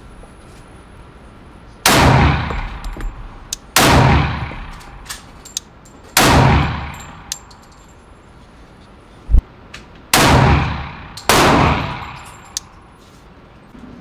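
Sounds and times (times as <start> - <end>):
pistol shots: 1.9 - 5.3, 6.2 - 7.3, 10.1 - 12.5.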